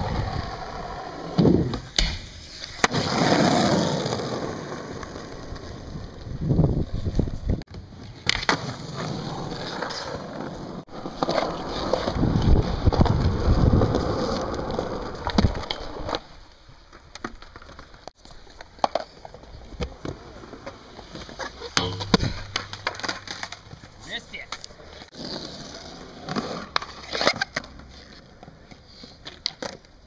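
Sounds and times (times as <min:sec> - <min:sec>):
inline skates rolling: 0:00.0 - 0:21.7, 0:23.5 - 0:30.0
skateboard wheels rolling: 0:00.0 - 0:21.8, 0:23.0 - 0:30.0
sharp clacks and knocks: 0:21.8 - 0:23.9.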